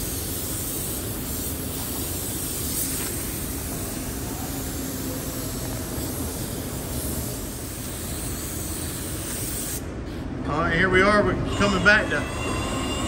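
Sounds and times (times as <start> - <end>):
paint spray gun hissing: 0.0 - 9.9.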